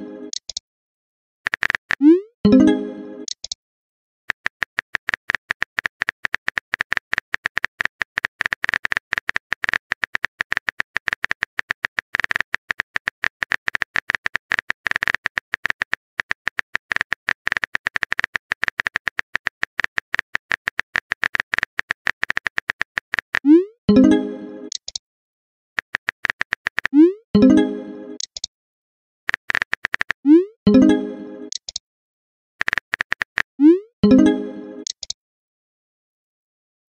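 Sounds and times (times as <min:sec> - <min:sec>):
phone keyboard typing clicks: 0:00.3 - 0:00.6, 0:01.5 - 0:02.1, 0:03.2 - 0:03.6, 0:04.3 - 0:23.6, 0:24.7 - 0:25.0, 0:25.8 - 0:27.0, 0:28.2 - 0:28.5, 0:29.3 - 0:30.2, 0:31.5 - 0:31.8, 0:32.6 - 0:35.2.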